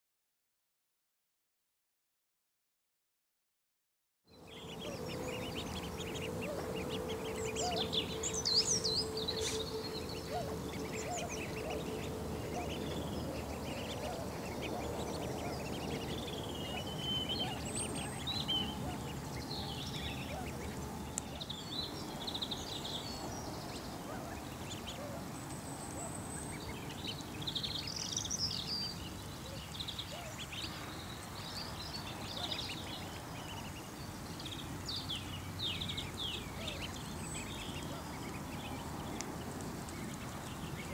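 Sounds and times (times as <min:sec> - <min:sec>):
ducklings peeping: 0:04.4 - 0:40.9.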